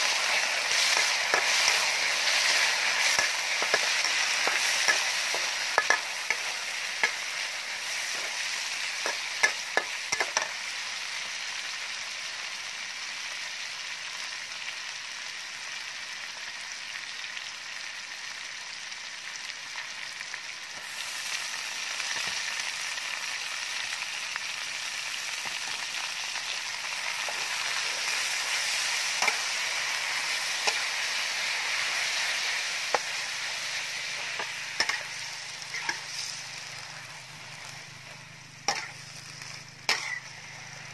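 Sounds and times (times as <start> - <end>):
metal spatula scraping wok: 0.0 - 10.6, 27.0 - 40.9
meat sizzling in hot oil: 0.0 - 40.9.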